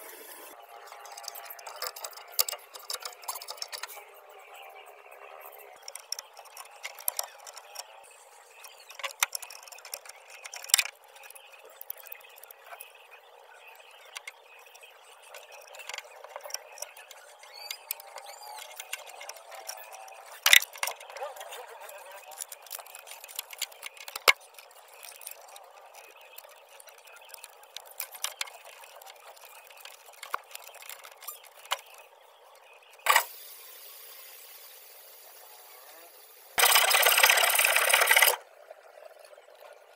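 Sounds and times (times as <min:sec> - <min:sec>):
wires rattling: 0:15.2 - 0:32.0.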